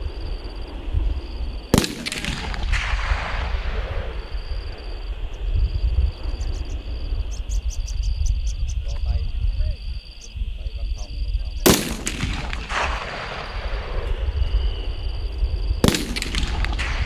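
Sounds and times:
rifle shot with echo: 0:01.7 - 0:05.1, 0:11.6 - 0:14.6, 0:15.8 - 0:17.0.

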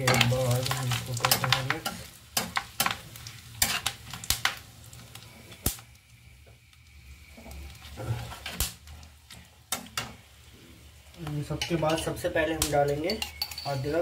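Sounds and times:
spices sizzling in hot oil: 0:00.0 - 0:14.0
metal spatula scraping metal pan: 0:03.6 - 0:04.0.

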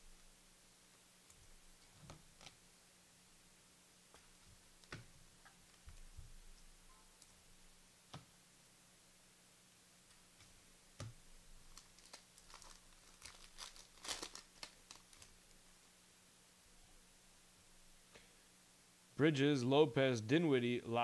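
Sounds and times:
wrapper crinkling and tearing: 0:11.6 - 0:15.6.

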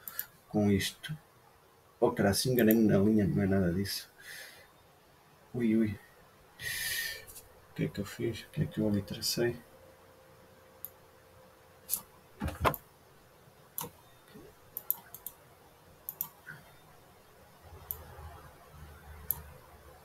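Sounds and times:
computer mouse clicks: 0:00.0 - 0:00.3, 0:13.8 - 0:14.0, 0:14.7 - 0:15.4, 0:16.1 - 0:16.5, 0:17.8 - 0:18.1, 0:19.2 - 0:19.5.

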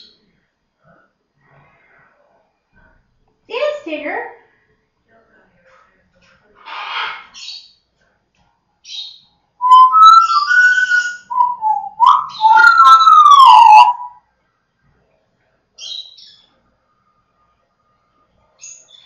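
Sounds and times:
faint scratchy parrot call: 0:06.6 - 0:07.6
parrot whistling gliding notes: 0:09.6 - 0:14.2.

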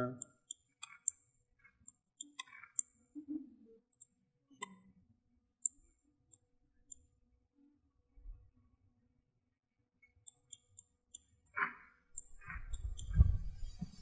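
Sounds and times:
computer mouse clicks: 0:00.2 - 0:03.0, 0:03.9 - 0:04.9, 0:05.6 - 0:07.1, 0:10.1 - 0:13.4.

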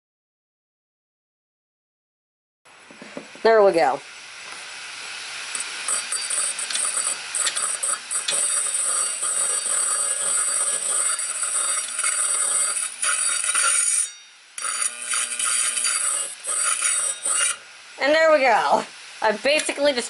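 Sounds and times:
screwdriver scraping spinning platter: 0:05.6 - 0:17.6.

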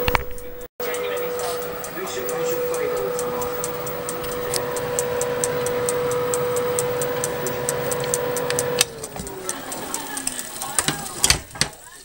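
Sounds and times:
fast sharp ticking: 0:00.0 - 0:12.0
oven fan humming: 0:00.0 - 0:12.0.

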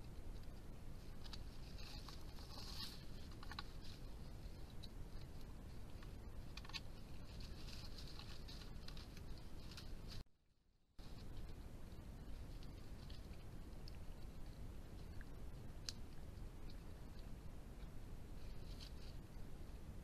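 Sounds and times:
leaves rustling: 0:00.0 - 0:10.2, 0:11.0 - 0:20.0.

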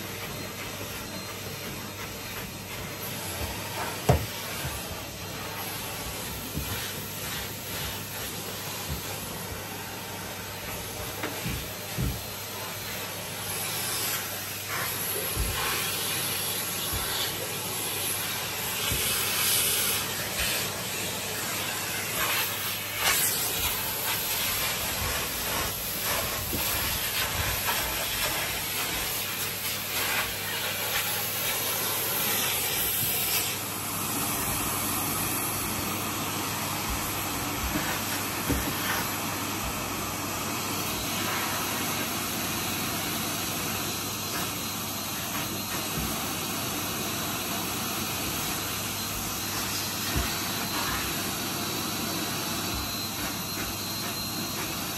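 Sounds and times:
vacuum cleaner running: 0:00.0 - 0:54.9.

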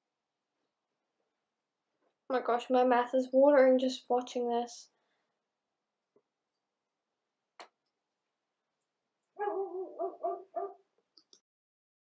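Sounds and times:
dog barking: 0:09.4 - 0:10.9.

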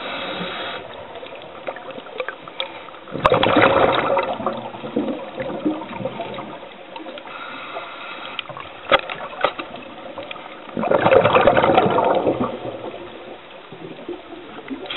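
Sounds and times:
underwater watery hiss: 0:00.0 - 0:01.4, 0:07.0 - 0:08.6
rush of bubbles: 0:00.0 - 0:07.8, 0:08.4 - 0:14.9.

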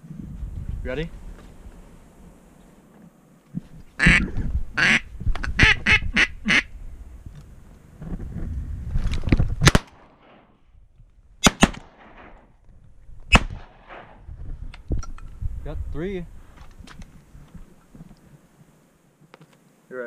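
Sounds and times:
duck quacks: 0:04.0 - 0:06.7
shotgun shots: 0:09.6 - 0:10.5, 0:11.4 - 0:12.5, 0:13.3 - 0:14.3.

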